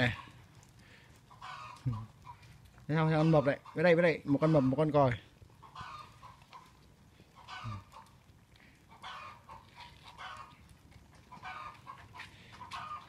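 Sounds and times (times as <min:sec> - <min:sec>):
faint short animal calls: 0:07.4 - 0:08.1.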